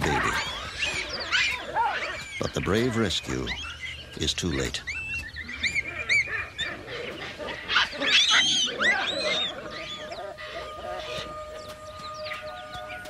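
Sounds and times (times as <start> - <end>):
baboons screaming: 0.0 - 13.0
quiet music with held tones: 8.9 - 13.0.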